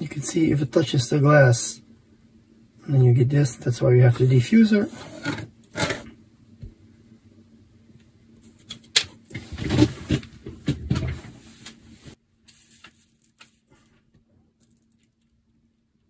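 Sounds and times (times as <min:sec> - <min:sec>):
faint steady hum: 0:00.0 - 0:16.0
rustling on paper: 0:11.4 - 0:15.2.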